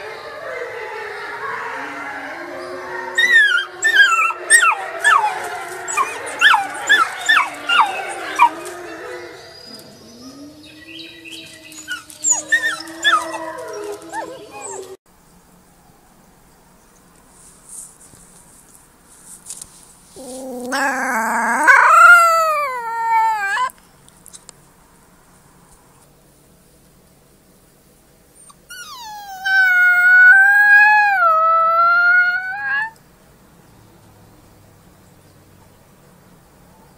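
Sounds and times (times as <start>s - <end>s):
wolf pup howling: 0.0s - 15.0s, 20.2s - 23.7s, 28.4s - 33.0s
wolf pups yipping: 3.2s - 15.0s, 20.2s - 23.7s, 28.4s - 33.0s.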